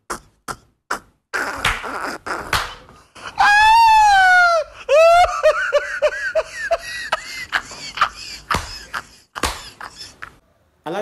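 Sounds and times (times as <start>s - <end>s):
man laughing hard: 3.3s - 10.4s.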